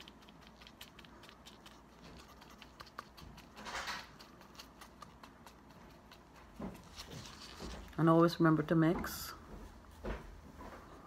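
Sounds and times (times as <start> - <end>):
gloves rustling: 6.4 - 8.0.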